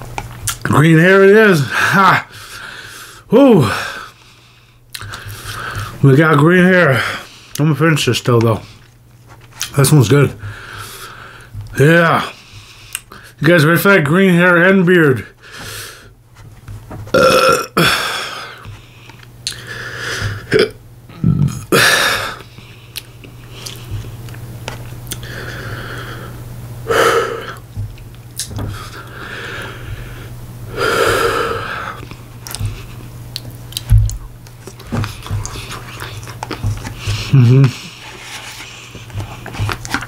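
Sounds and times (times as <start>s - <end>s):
man burping: 17.1s - 18.6s, 20.4s - 22.4s.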